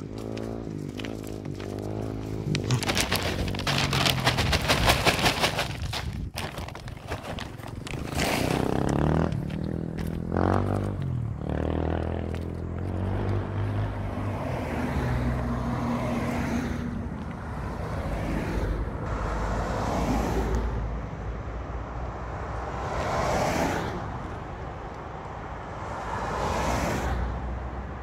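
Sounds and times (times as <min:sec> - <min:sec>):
cars passing on highway: 0:00.0 - 0:28.0.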